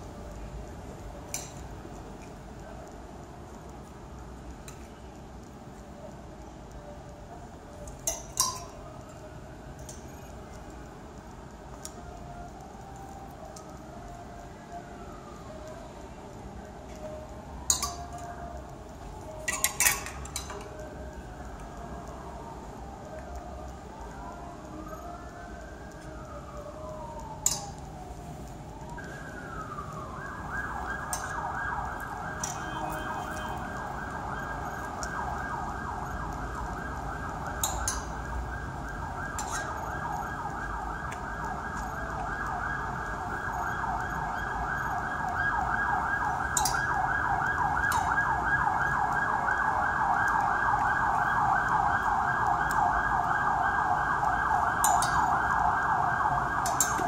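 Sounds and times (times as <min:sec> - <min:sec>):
emergency siren wailing and yelping: 0:05.4 - 0:57.0.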